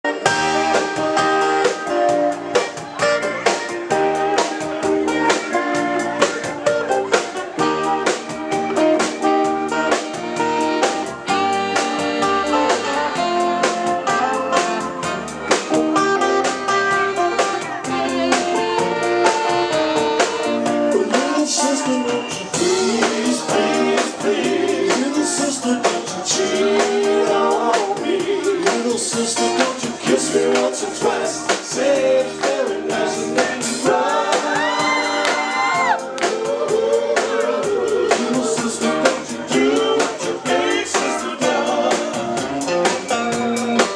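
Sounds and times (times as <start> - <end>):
saxophone: 0.0 - 28.6
electric bass: 0.0 - 43.9
drum kit with cymbal beats: 0.1 - 43.9
sung vocals: 20.4 - 43.9.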